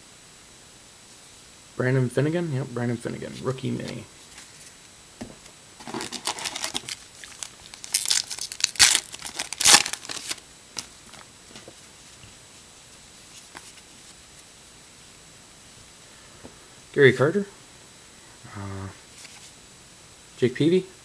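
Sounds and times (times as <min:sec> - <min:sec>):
card pack wrapper tearing and crinkling: 0:05.8 - 0:11.3.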